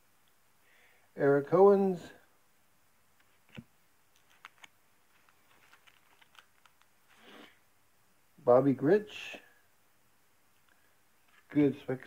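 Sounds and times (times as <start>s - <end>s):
cards being shuffled: 3.2s - 7.6s, 11.2s - 11.6s.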